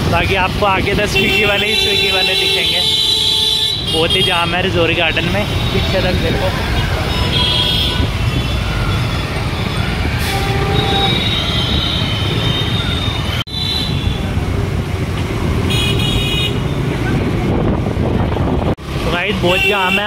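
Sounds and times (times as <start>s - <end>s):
traffic engines and road noise: 0.0s - 20.0s
vehicle horns honking: 1.0s - 6.1s, 6.7s - 14.4s, 15.7s - 16.9s, 19.4s - 20.0s.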